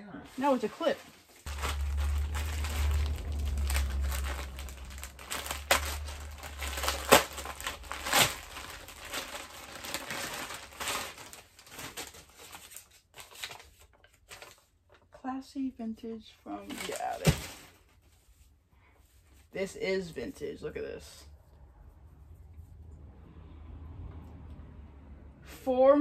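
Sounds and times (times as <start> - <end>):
plastic bags crinkling: 0.4 - 14.7, 16.6 - 18.0
low rumble: 1.5 - 9.9, 21.1 - 25.5.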